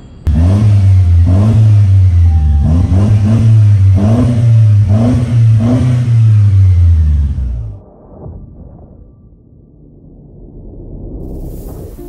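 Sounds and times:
car engine revving: 0:00.2 - 0:07.8.

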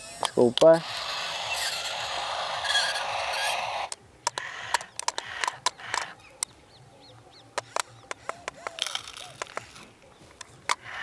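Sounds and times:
toy excavator scraping hiss: 0:00.0 - 0:04.5
gravel clicking: 0:07.5 - 0:11.0.

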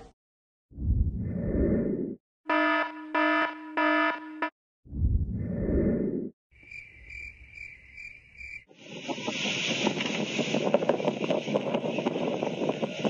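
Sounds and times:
wind: 0:06.5 - 0:13.0
chirring insects: 0:06.6 - 0:09.3.

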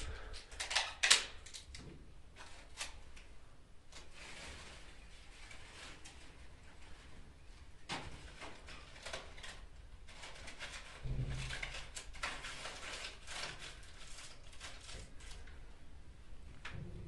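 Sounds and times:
paper rustling: 0:08.0 - 0:15.7.

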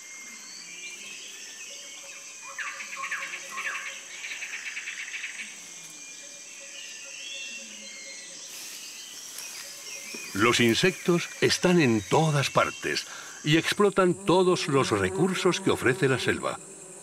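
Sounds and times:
high-pitched insect drone: 0:00.0 - 0:17.0
bird calls: 0:06.3 - 0:13.6.

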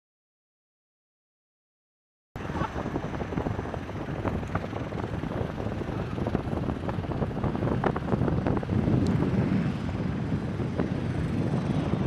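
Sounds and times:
jet engine rumble: 0:02.4 - 0:12.0
wind buffeting microphone: 0:02.4 - 0:12.0.

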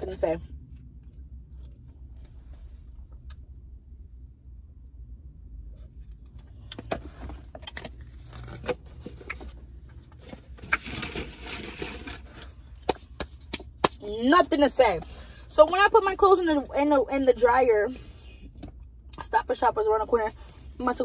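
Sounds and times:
low steady hum: 0:00.0 - 0:21.0
rustling scrape: 0:10.2 - 0:12.6.

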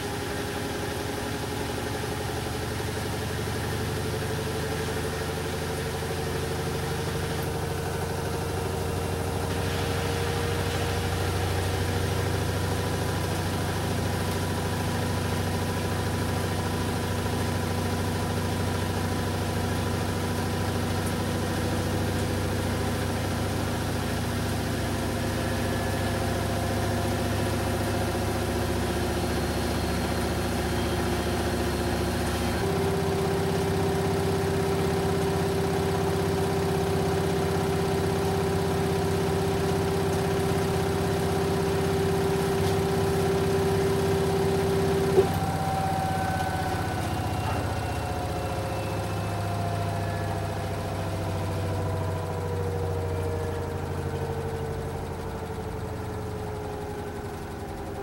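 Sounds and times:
washing machine hum and whine: 0:00.0 - 0:58.0
strong steady tone: 0:41.6 - 0:55.4.

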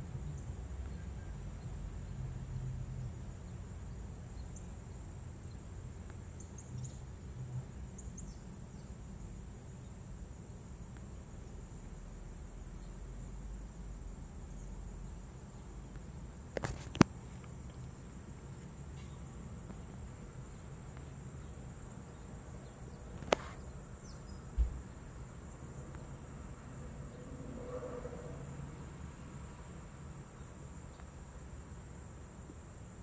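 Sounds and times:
low background hiss: 0:00.0 - 0:33.0
dull thump: 0:24.5 - 0:25.0.

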